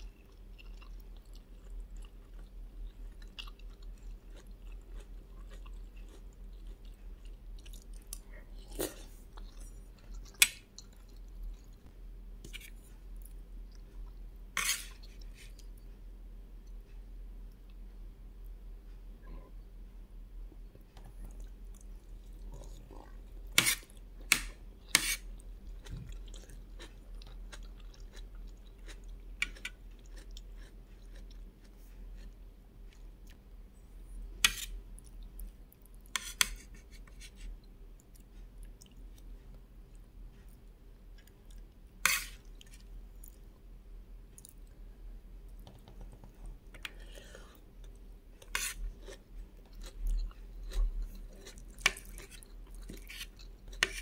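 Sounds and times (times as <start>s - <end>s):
mouth chewing food: 0.0s - 11.9s, 21.0s - 33.4s, 46.7s - 54.0s
metal spoon scraping plate: 14.6s - 14.9s, 42.0s - 42.4s.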